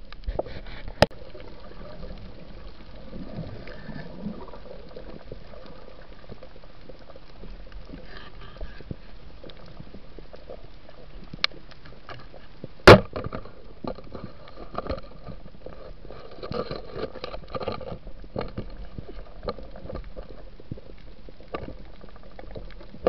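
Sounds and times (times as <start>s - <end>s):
crackling clicks: 0.0s - 23.0s
underwater watery hiss: 0.4s - 6.3s.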